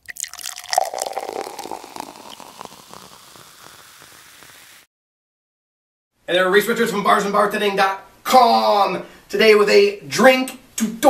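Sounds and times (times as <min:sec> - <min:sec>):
crackling fizzing liquid: 0:00.0 - 0:04.9.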